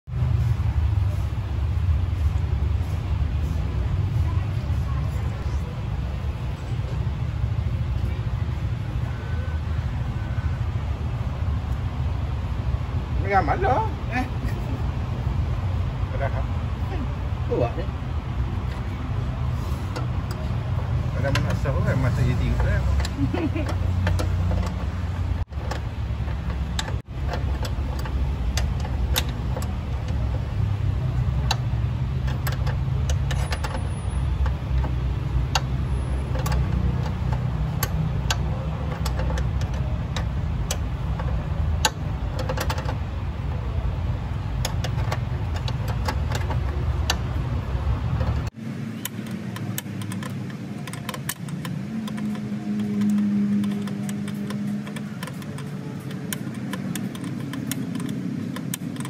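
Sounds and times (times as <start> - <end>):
steady low rumble: 0.0 - 59.0
hand tool clicking on metal: 21.2 - 59.0.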